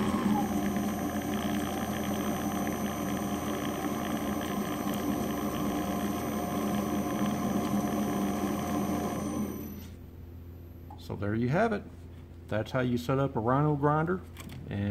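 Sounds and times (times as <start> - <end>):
nut grinder motor hum: 0.0 - 10.0.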